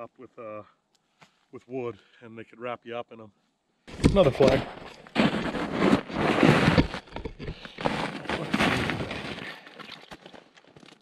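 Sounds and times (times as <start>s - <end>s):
snow crunching: 3.9s - 10.4s.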